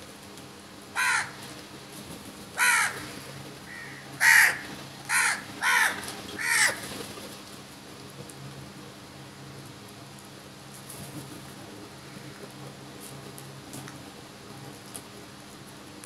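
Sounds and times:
crows cawing: 1.0 - 1.5, 2.6 - 6.9.

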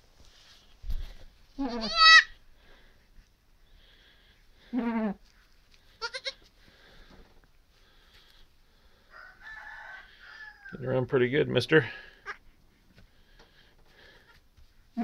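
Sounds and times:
goat low bleat: 1.6 - 2.3, 4.7 - 5.2, 6.0 - 6.4
goat kid quavering bleat: 1.6 - 2.4, 4.7 - 5.3, 5.9 - 6.5.

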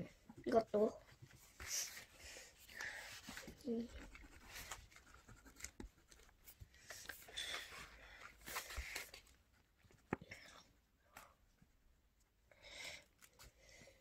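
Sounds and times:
pen scratching on paper: 3.8 - 6.4.

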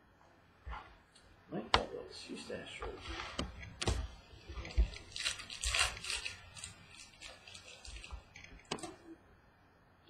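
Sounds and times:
dry rustle of card: 4.4 - 9.0.

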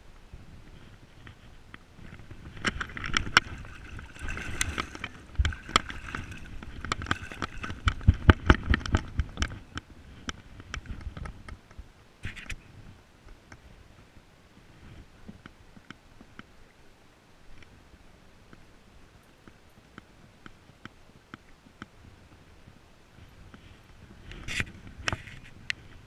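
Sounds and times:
water splashing and sloshing: 2.0 - 9.6
fish slapping in water: 2.6 - 9.1.

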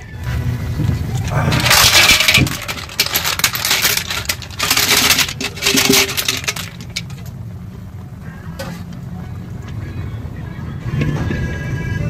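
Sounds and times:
rustling: 0.9 - 7.3
rapid clicks and clatter: 1.1 - 7.4.

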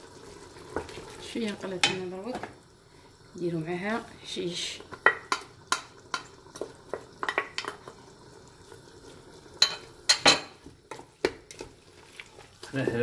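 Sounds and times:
utensils knocking against a pot: 6.9 - 8.0.

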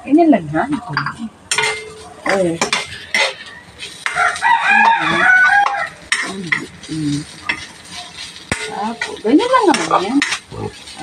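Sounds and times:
metal spatula scraping in wok: 1.5 - 11.0
rooster crowing: 4.1 - 6.1.

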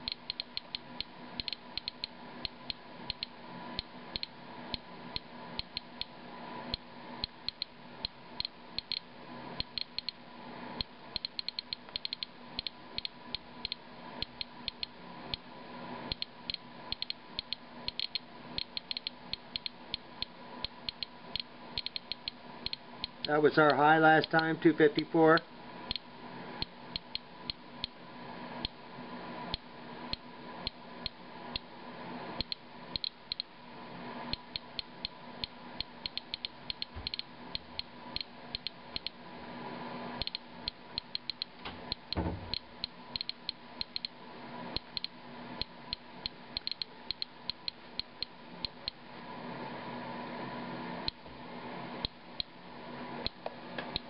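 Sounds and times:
geiger counter clicking: 0.0 - 6.1, 6.7 - 10.2, 10.8 - 15.4, 16.1 - 24.4, 25.9 - 26.1, 26.9 - 28.0, 32.4 - 33.5, 34.3 - 39.2, 40.2 - 44.2, 44.8 - 49.0.

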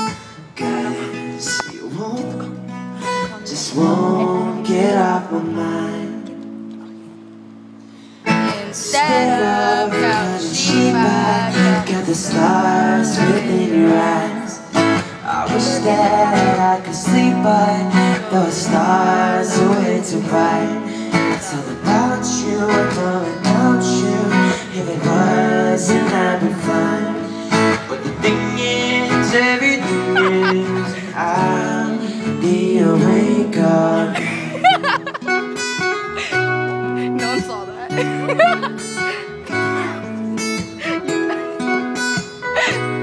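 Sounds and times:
acoustic guitars strumming: 0.0 - 43.0
person singing: 3.1 - 6.2, 8.3 - 14.6, 15.3 - 35.2.

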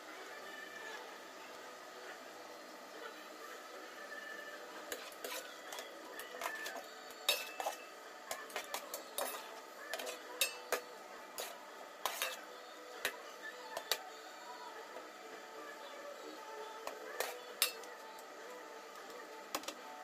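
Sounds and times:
metal spoon scraping a pot: 4.9 - 13.2.

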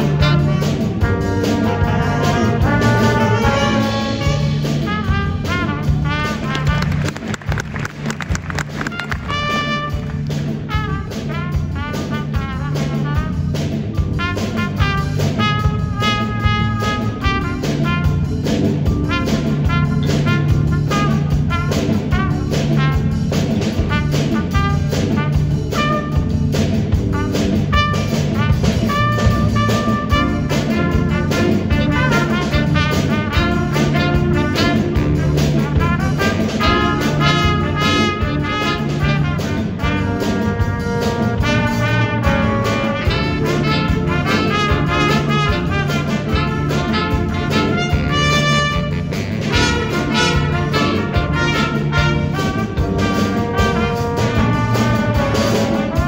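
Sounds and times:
jazz big band playing: 0.0 - 56.0.

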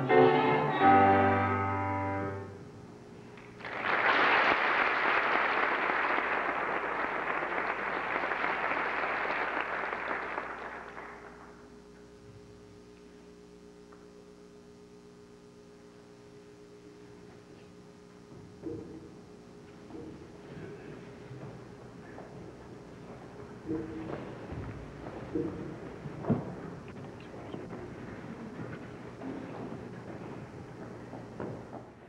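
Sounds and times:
piano chord: 0.0 - 2.6
faint steady hum: 0.0 - 32.0
audience applauding: 3.4 - 11.6.

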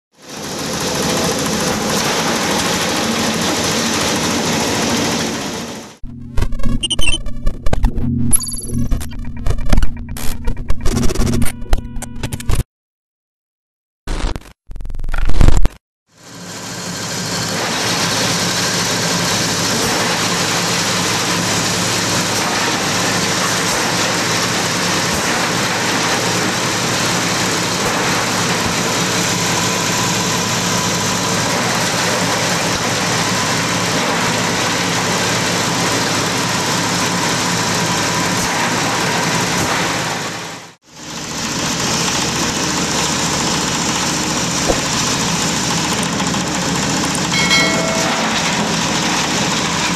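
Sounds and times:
shredder chopping branches: 0.2 - 6.0, 16.4 - 49.9
diesel engine hum: 40.9 - 49.9.

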